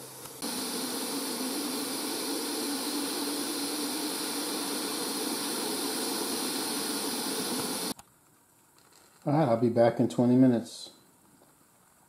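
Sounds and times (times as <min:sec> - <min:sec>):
pressure cooker steam hissing: 0:00.0 - 0:08.0.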